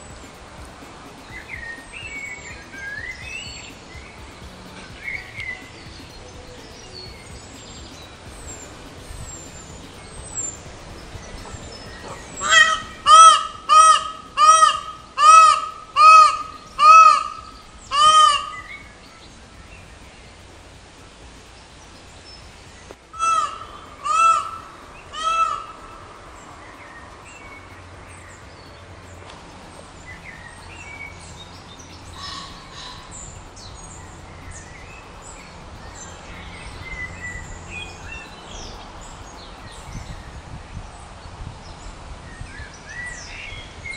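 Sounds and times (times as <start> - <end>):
peacock calling: 0.0 - 20.6, 22.9 - 38.8
small birds chirping: 0.0 - 43.9.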